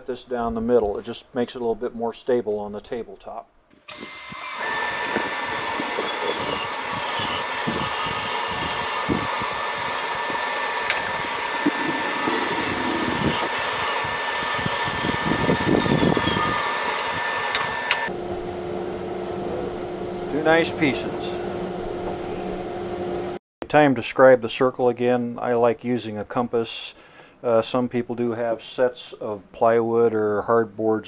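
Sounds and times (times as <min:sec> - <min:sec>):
bandsaw motor whine: 0:03.9 - 0:23.4
saw blade rasping through wood: 0:04.0 - 0:17.6.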